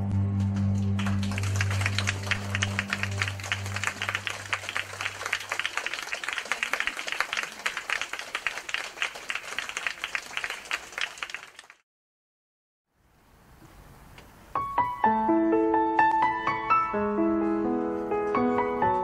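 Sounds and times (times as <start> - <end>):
low music notes: 0.0 - 5.0
audience applauding: 0.4 - 11.8.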